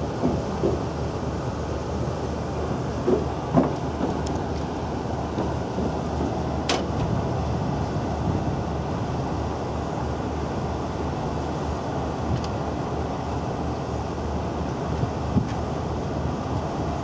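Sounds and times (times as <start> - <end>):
boat engine drone: 0.0 - 17.0
wind noise on microphone: 3.6 - 17.0.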